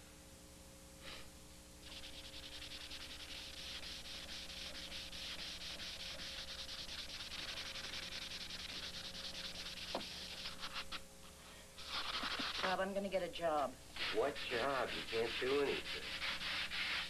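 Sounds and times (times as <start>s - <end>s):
sandpaper rasping on wood: 1.8s - 11.0s, 11.8s - 12.8s, 14.0s - 17.0s.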